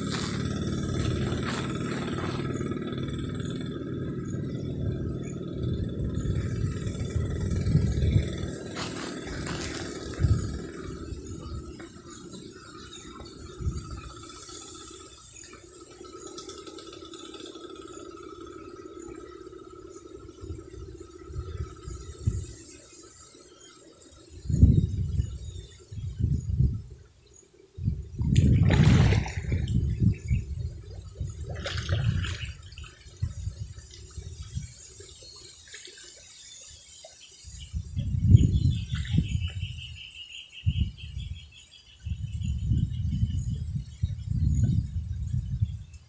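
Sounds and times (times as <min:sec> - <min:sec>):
water sloshing and splashing: 0:00.0 - 0:02.9, 0:28.2 - 0:37.2
water sloshing from wading: 0:00.0 - 0:18.6, 0:28.2 - 0:37.4.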